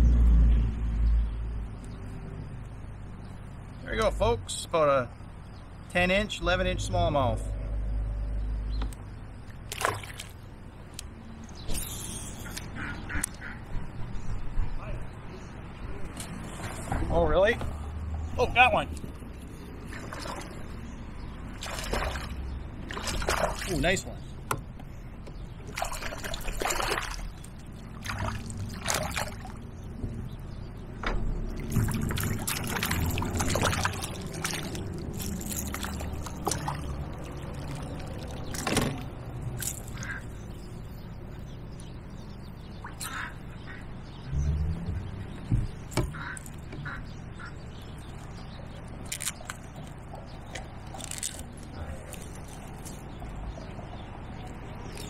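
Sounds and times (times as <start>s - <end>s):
water splashing and dripping: 9.4s - 10.6s, 19.8s - 24.1s, 25.2s - 30.1s, 31.0s - 40.4s, 42.7s - 43.5s, 45.0s - 53.7s, 54.3s - 55.0s.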